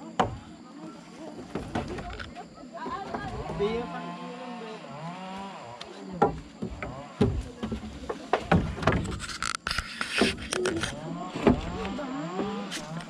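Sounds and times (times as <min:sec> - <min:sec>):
logs knocking onto a log pile: 0:00.2 - 0:00.5, 0:01.3 - 0:02.3, 0:06.1 - 0:09.2, 0:11.4 - 0:13.0.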